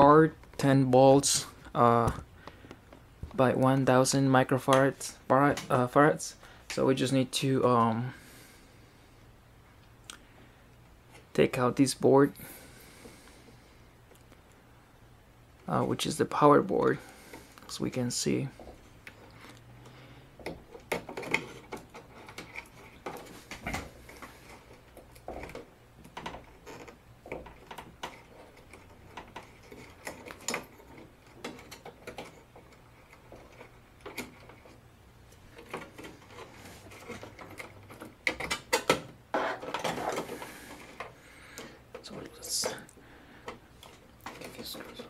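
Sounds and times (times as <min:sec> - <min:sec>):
wires rattling: 0:15.7 - 0:45.0.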